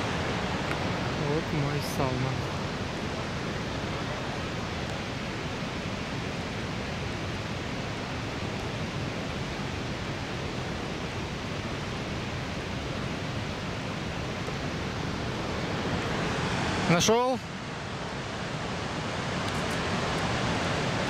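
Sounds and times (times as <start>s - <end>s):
river flowing over rocks: 0.0s - 21.0s.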